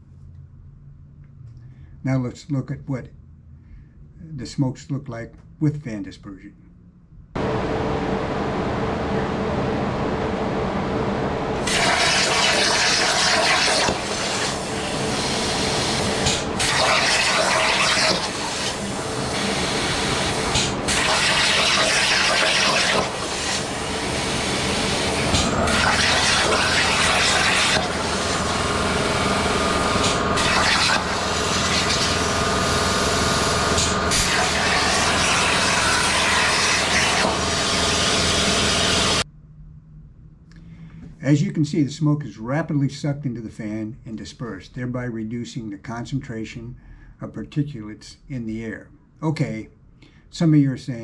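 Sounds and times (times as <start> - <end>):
floor fan humming: 6.9 - 11.7
plasma torch hissing: 11.6 - 39.2.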